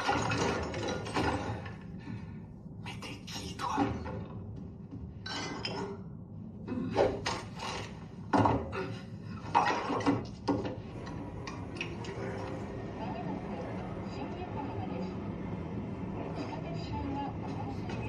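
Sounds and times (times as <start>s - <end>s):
glass bottles and tableware clinking: 0.0s - 1.7s, 5.2s - 6.0s.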